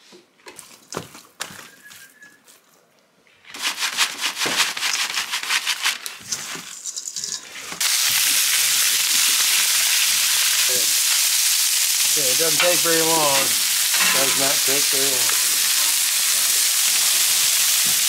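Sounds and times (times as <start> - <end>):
potato chips crunching and rattling: 3.6 - 11.2, 12.1 - 18.0
fish sizzling on griddle: 6.3 - 18.0.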